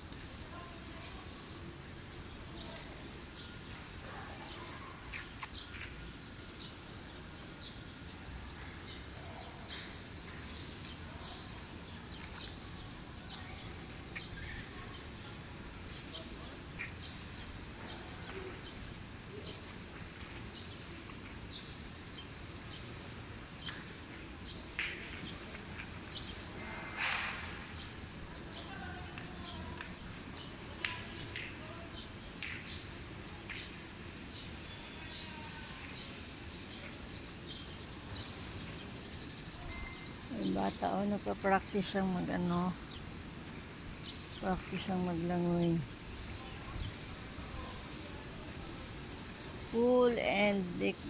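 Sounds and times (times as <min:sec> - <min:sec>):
small birds chirping: 0:00.1 - 0:51.0.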